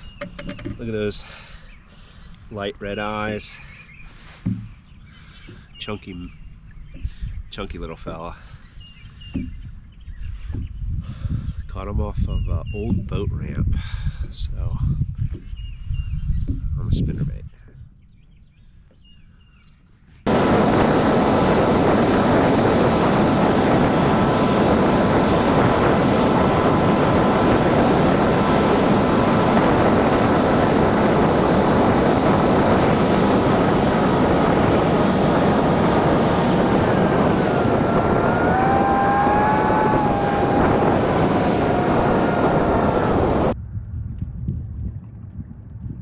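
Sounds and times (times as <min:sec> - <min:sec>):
wind buffeting microphone: 0:04.5 - 0:19.3, 0:20.2 - 0:46.0
boat motor drone: 0:20.3 - 0:43.6
faint steady whine: 0:20.3 - 0:43.6
pitched tones sliding up: 0:20.3 - 0:43.6.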